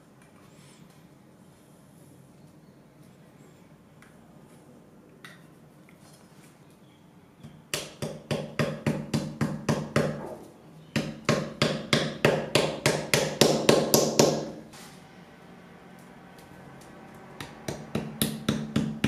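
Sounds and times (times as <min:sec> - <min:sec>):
hammer tapping discs into wood: 0:07.4 - 0:14.6, 0:17.4 - 0:19.0.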